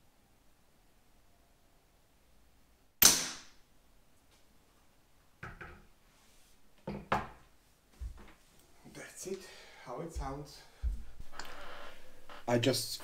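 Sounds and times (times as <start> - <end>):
air rifle shot: 3.0 - 3.6.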